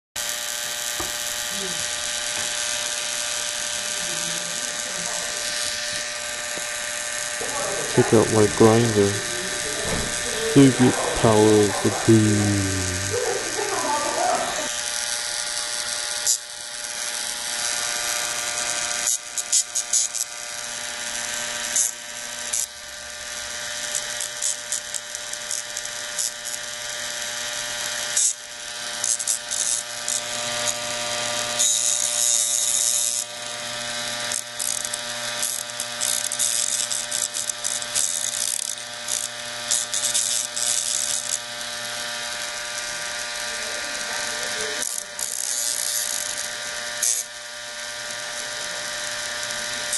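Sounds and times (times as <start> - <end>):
hard disk platter whining: 3.8 - 14.8.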